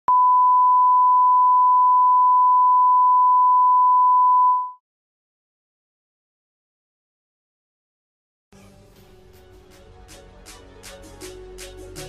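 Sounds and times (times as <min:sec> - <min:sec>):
steady test tone beep: 0:00.1 - 0:04.8.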